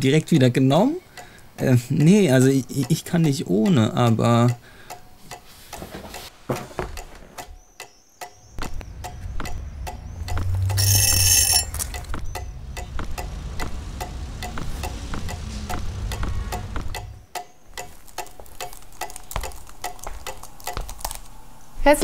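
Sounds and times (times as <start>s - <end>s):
clock ticking quickly: 1.2s - 5.4s, 7.0s - 20.4s
low rumbling drone: 8.6s - 17.3s
bright ringing swell: 10.0s - 12.9s.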